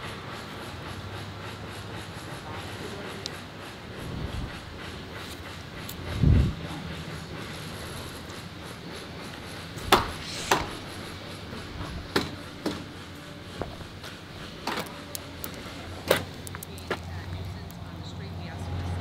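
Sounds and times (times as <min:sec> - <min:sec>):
sharp knocks: 0:09.8 - 0:10.8.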